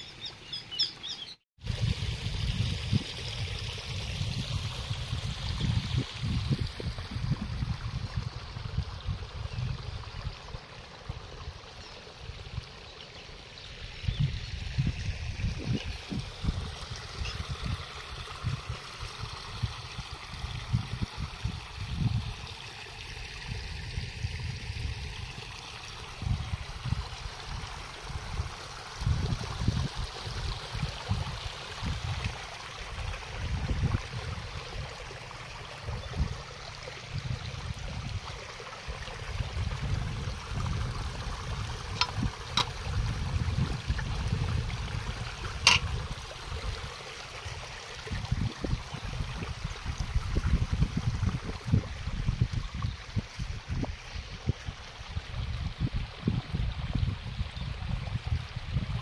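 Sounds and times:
water flowing and splashing: 0:00.0 - 0:59.0
wind buffeting microphone: 0:01.6 - 0:10.5, 0:14.0 - 0:18.8, 0:26.1 - 0:46.9, 0:47.5 - 0:59.0.

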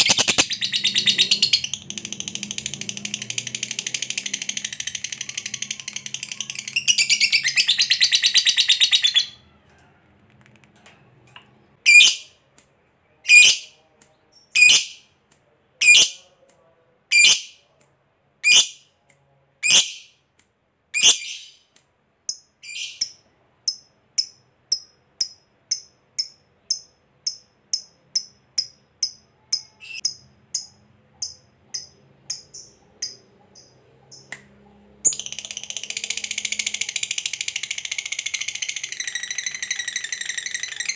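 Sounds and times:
bird chirps: 0:00.0 - 0:09.5, 0:11.8 - 0:12.4, 0:21.0 - 0:34.4, 0:35.0 - 0:40.9.

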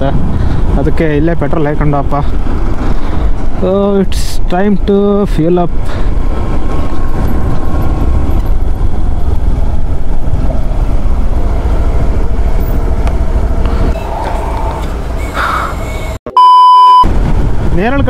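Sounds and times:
wind noise on microphone: 0:00.0 - 0:03.6, 0:17.1 - 0:18.0
road noise: 0:00.0 - 0:18.0.

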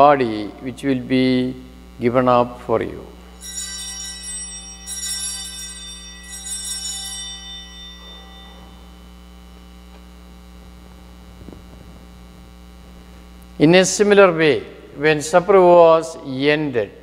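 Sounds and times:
electrical hum: 0:00.0 - 0:17.0
altar bells ringing: 0:03.2 - 0:09.2.

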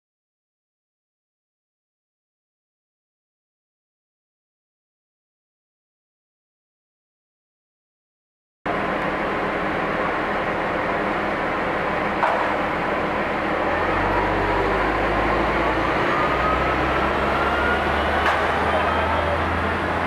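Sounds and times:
city street traffic: 0:08.7 - 0:20.0.

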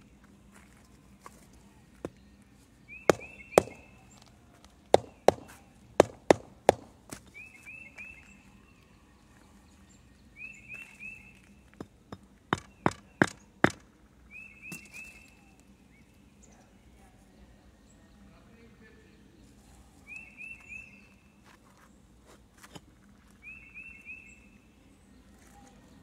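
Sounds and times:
rubber mallet tapping pavers: 0:03.1 - 0:03.9, 0:04.9 - 0:07.1, 0:12.1 - 0:13.8.

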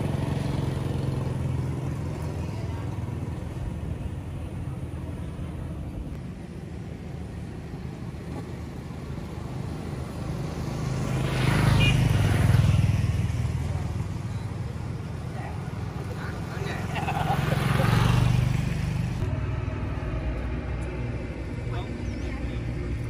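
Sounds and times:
vehicle engine running: 0:12.1 - 0:23.0.

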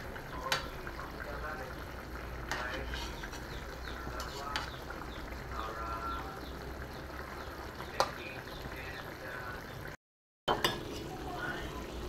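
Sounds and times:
liquid bubbling in a wok: 0:00.0 - 0:12.0.

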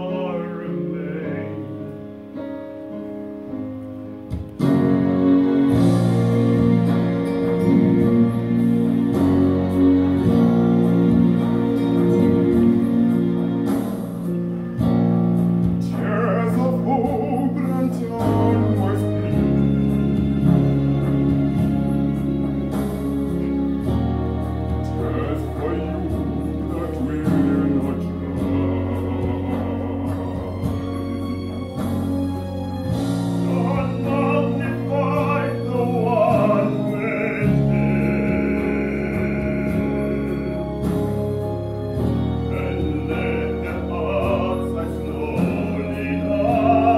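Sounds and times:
male quartet singing a cappella: 0:15.9 - 0:19.6, 0:24.8 - 0:31.9, 0:33.4 - 0:41.1, 0:42.5 - 0:46.9.

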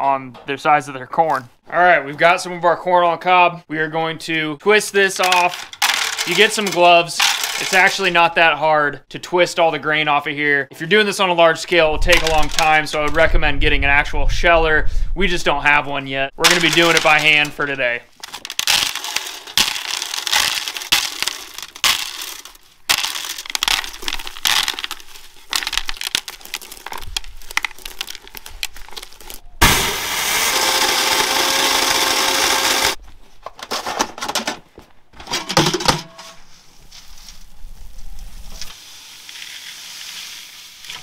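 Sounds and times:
corn kernels crackling loose: 0:05.1 - 0:08.0, 0:12.0 - 0:13.2, 0:16.4 - 0:33.0, 0:38.6 - 0:41.0
grain mill grinding: 0:18.2 - 0:33.0.

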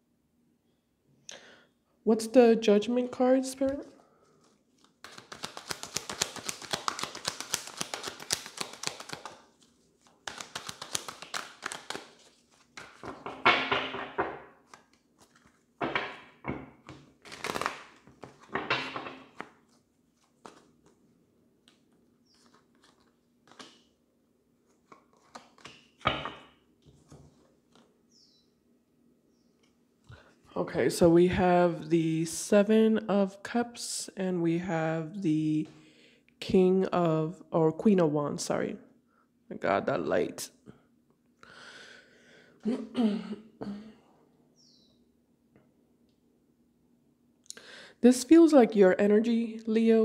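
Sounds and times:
cards being shuffled: 0:03.6 - 0:13.5, 0:14.1 - 0:16.2, 0:16.8 - 0:21.0, 0:21.6 - 0:24.0, 0:24.6 - 0:27.9.

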